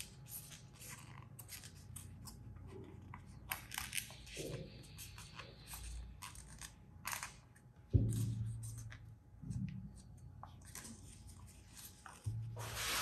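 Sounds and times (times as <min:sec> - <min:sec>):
paper banknote crinkling: 0:00.0 - 0:07.4.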